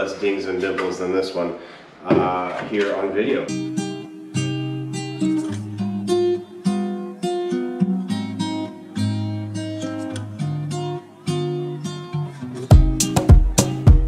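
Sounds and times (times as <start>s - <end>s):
acoustic guitar strumming: 2.9s - 14.0s.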